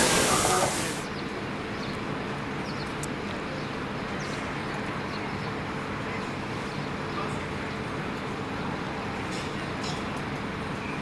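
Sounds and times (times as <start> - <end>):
engines idling: 0.0 - 1.1
distant traffic: 0.0 - 11.0.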